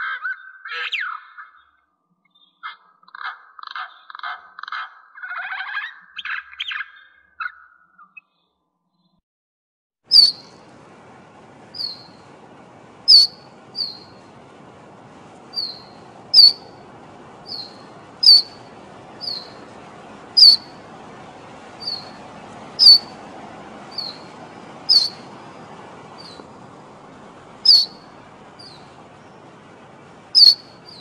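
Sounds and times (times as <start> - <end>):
wren chip calls: 10.1 - 31.0.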